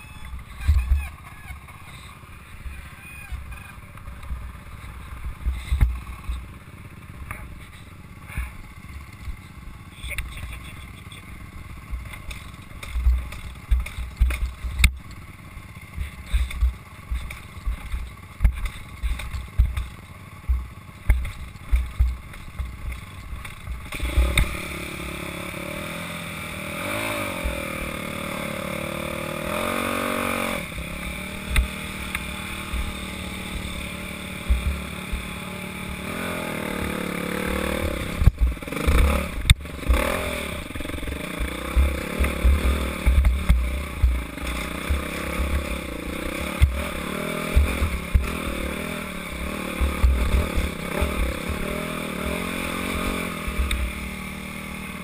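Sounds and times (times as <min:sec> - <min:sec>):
dirt bike engine revving: 0:00.0 - 0:55.0
low thumps from bumps: 0:11.9 - 0:15.1, 0:15.9 - 0:24.6, 0:30.7 - 0:54.0.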